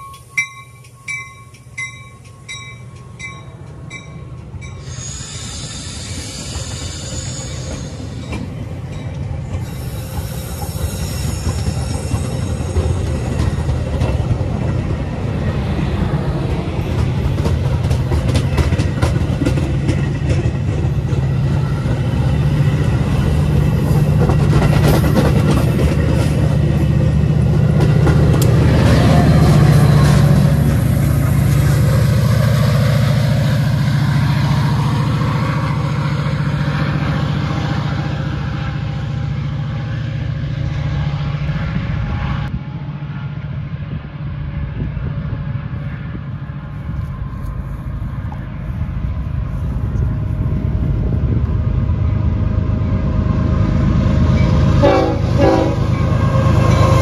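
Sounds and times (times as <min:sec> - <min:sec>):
train wheels clicking over rail joints: 0:00.0 - 0:37.7
diesel locomotive drone: 0:00.0 - 0:57.0.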